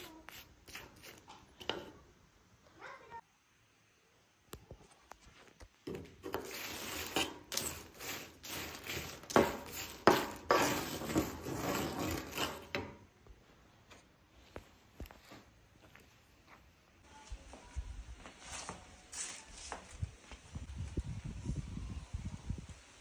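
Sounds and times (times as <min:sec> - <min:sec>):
spatula scraping dried chiles: 0:00.0 - 0:02.0, 0:05.9 - 0:13.0.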